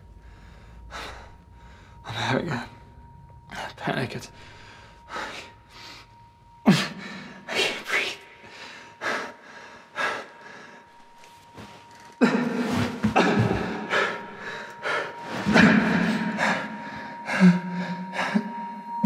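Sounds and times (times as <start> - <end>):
man groaning breaths: 12.2 - 18.6.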